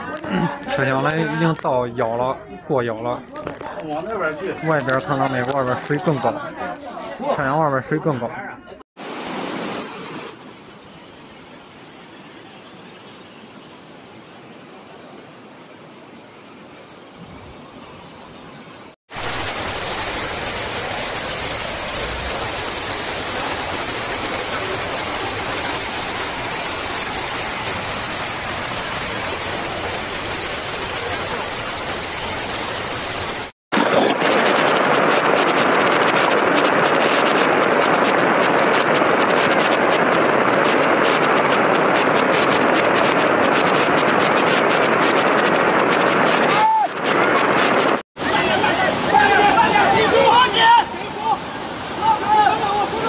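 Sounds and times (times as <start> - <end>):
floodwater rushing: 9.0 - 53.0.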